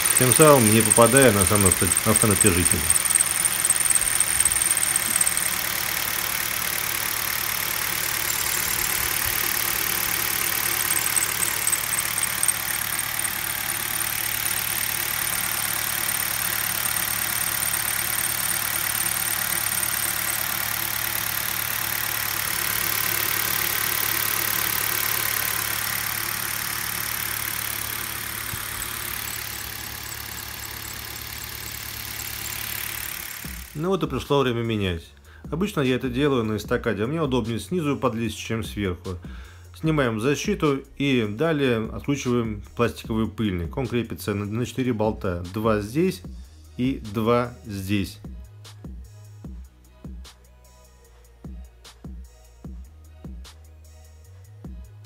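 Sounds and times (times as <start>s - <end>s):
car engine idling: 0.0s - 33.8s.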